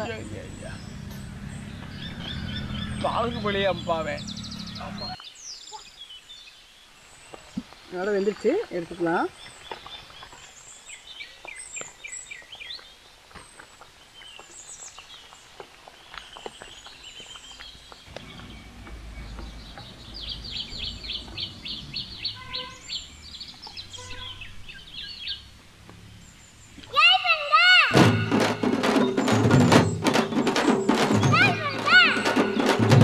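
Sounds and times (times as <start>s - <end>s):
low rumble: 0.0s - 5.2s
small birds chirping: 0.0s - 33.0s.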